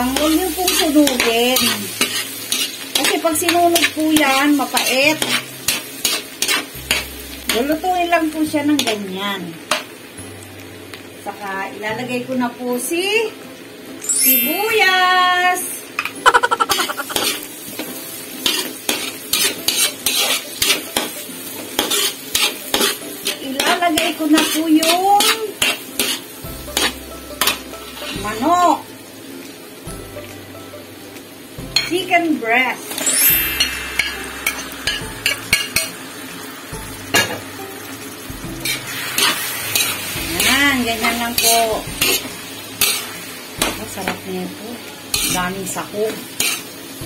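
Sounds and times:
spatula scraping a pan: 0.0s - 7.1s, 16.7s - 17.5s, 18.4s - 21.1s, 21.8s - 28.1s, 38.6s - 43.2s, 45.1s - 45.4s, 46.4s - 46.7s
butter sizzling: 0.0s - 47.0s.

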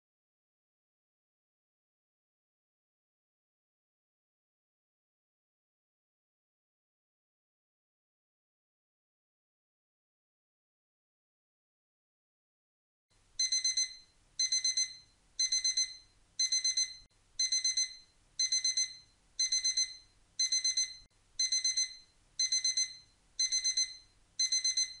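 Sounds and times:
alarm clock beeping: 13.4s - 25.0s.

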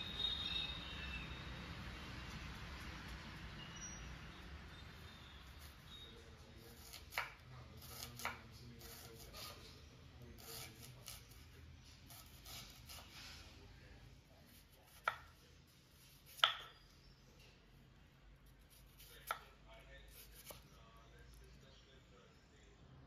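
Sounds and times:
knife chopping on wooden board: 6.6s - 9.6s, 14.5s - 15.4s, 16.1s - 16.8s, 18.6s - 19.5s, 20.1s - 20.6s.

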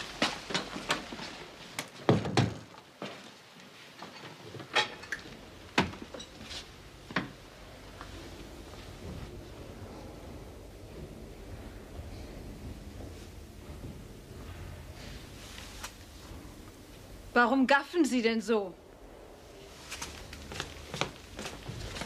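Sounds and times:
footsteps on hard floor: 19.9s - 22.0s.

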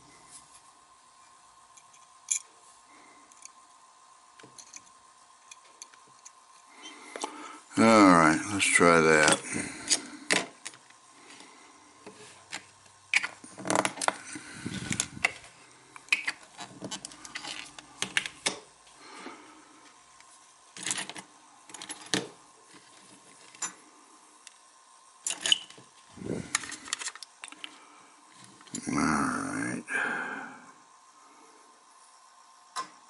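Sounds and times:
small metal parts clicking and tapping: 1.7s - 2.5s, 3.3s - 3.6s, 4.4s - 6.4s, 20.8s - 23.8s, 25.2s - 25.8s.

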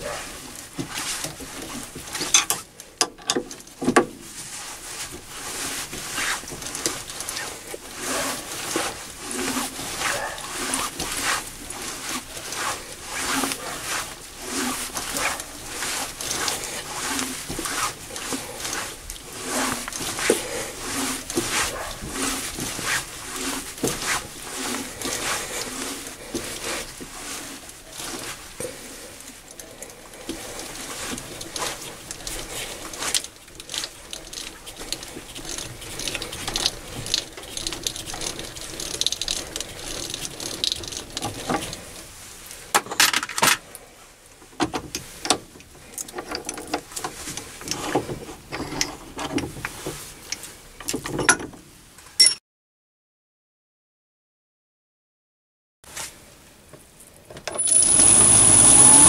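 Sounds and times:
metal die clicking and scraping: 2.2s - 3.5s.

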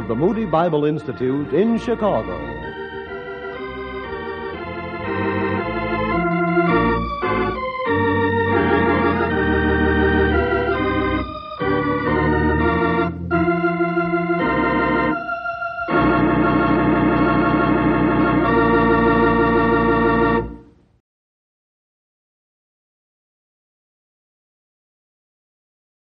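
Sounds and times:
organ playing held chords: 0.0s - 20.8s.

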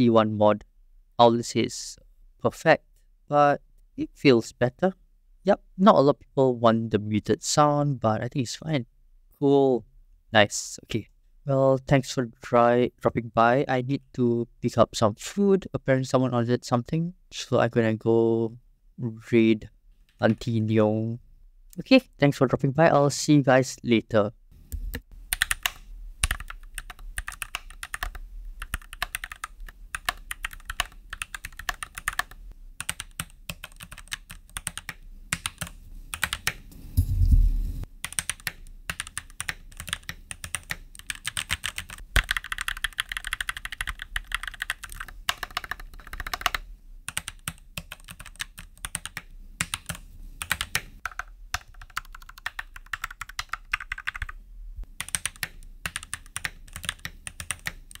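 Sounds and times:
fast mechanical keyboard typing: 25.3s - 36.6s, 38.0s - 54.3s, 55.0s - 58.0s
deep thump: 37.0s - 37.9s.

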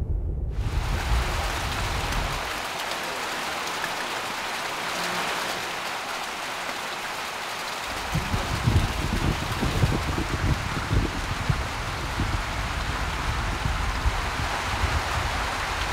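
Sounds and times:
low rumble: 0.0s - 2.6s
steady rain on garden and paving: 0.6s - 15.9s.

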